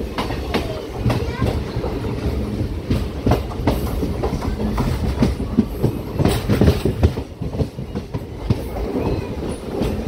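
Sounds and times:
train rumbling: 0.0 - 10.0
wheels clacking over rail joints: 0.0 - 10.0.

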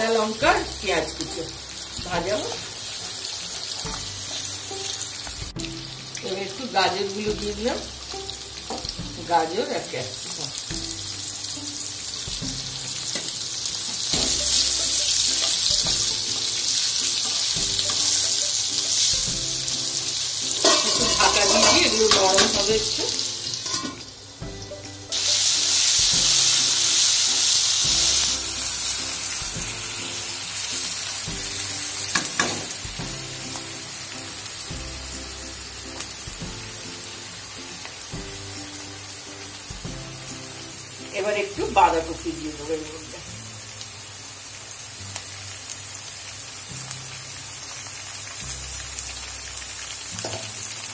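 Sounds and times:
vegetables sizzling in a wok: 0.0 - 50.9
spatula stirring clatter: 20.6 - 22.6.

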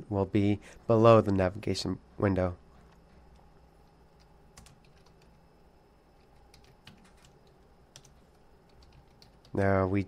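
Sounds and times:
keyboard typing clicks: 4.2 - 5.4, 6.2 - 9.6.

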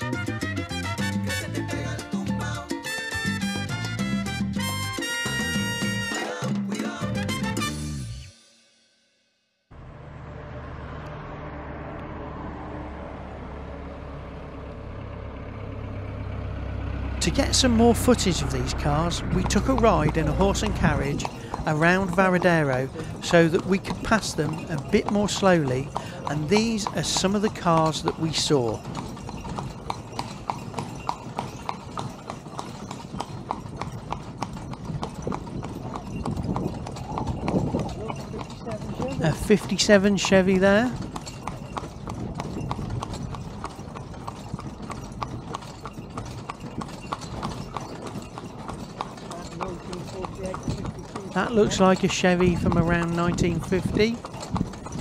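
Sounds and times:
horse hooves clip-clopping on pavement: 0.0 - 6.2, 16.6 - 55.0
car engine low rumble: 9.7 - 21.9.

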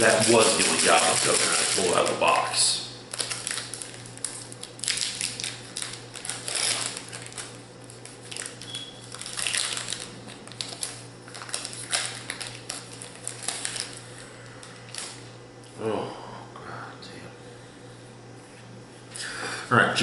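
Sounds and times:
foil wrappers crinkling: 0.0 - 15.4.

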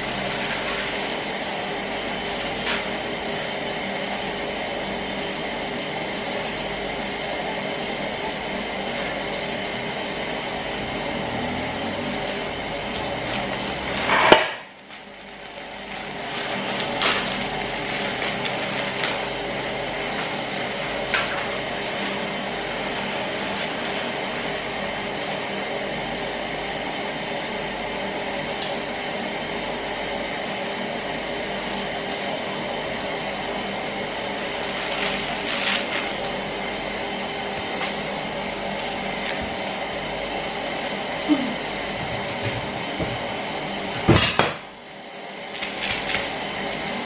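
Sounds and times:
droning hum with hiss: 0.0 - 47.0
gas burner flame rushing: 0.0 - 47.0
plastic sachet crinkling and tearing: 15.6 - 19.3.

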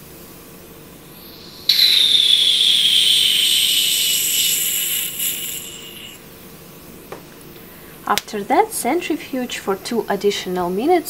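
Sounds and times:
vacuum aspirator hiss and whistle: 0.8 - 6.3.

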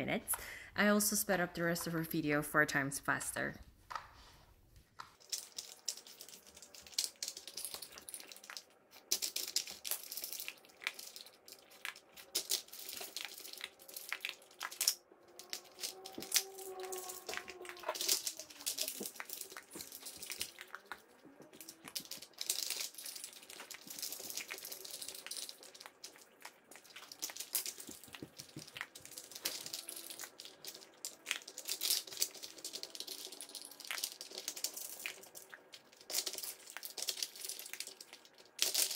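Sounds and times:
plastic puzzle feeder clicking and rattling: 5.1 - 38.9.

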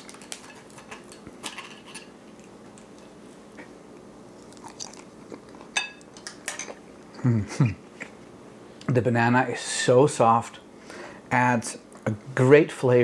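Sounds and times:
person chewing: 2.1 - 7.2.

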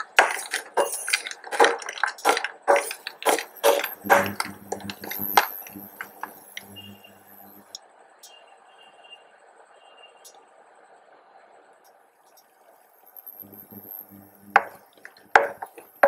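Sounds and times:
spatula scraping a frying pan: 0.0 - 6.4, 14.6 - 16.0
faint low hum: 1.4 - 8.2, 10.3 - 16.0.

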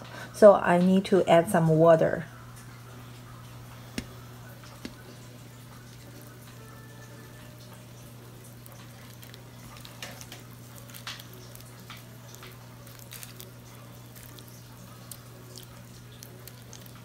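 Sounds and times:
water dripping onto soil: 8.0 - 17.0.

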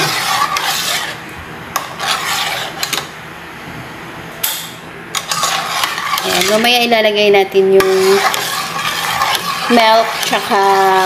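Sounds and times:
spoon scraping a metal pot: 0.0 - 1.2, 1.8 - 3.0, 5.2 - 6.9, 7.8 - 11.0.

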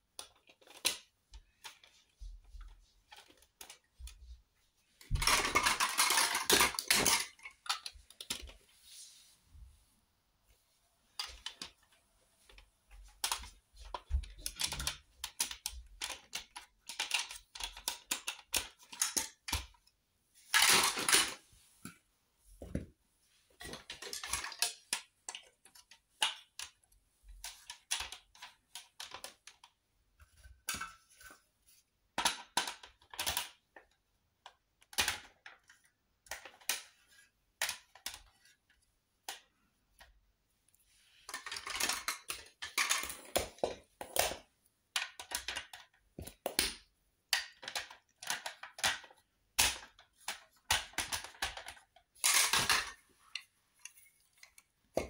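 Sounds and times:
plastic pieces clicking and clattering: 0.1 - 2.0, 5.0 - 8.6, 11.2 - 11.8, 13.2 - 19.9, 20.5 - 21.4, 23.6 - 29.8, 32.2 - 40.1, 41.3 - 55.0.

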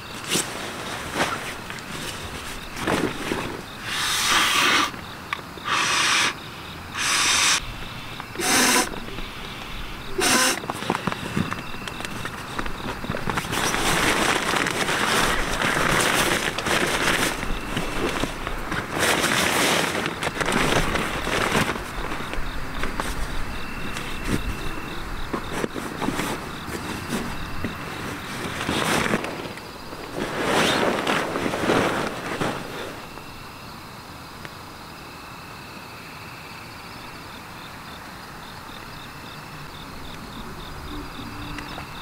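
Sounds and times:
nylon sleeping pad rustling: 0.0 - 5.0, 10.1 - 33.3
thin steady insect tone: 0.0 - 42.0
breaths blown into valve: 8.4 - 9.0, 10.2 - 10.6.

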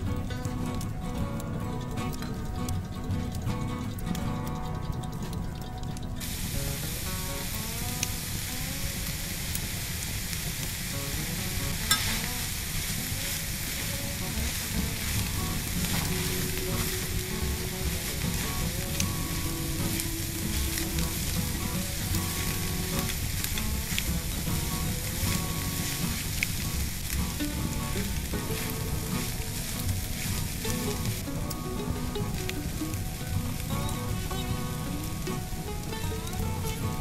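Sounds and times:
vegetables sizzling in oil: 0.0 - 37.0
spatula scraping a pan: 11.9 - 16.9.

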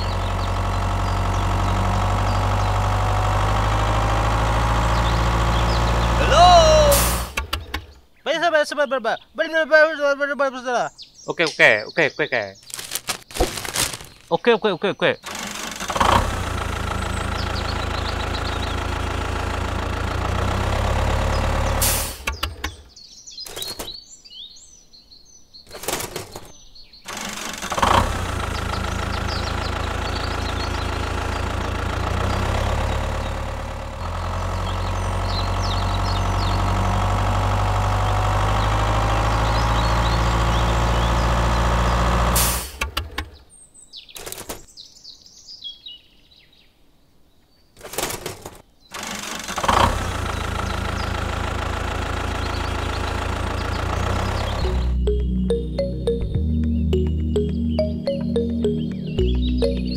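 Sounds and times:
tractor engine running: 0.0 - 8.1, 15.2 - 24.0, 25.7 - 43.4, 47.8 - 59.9
birds chirping: 0.0 - 42.3, 43.0 - 59.9.

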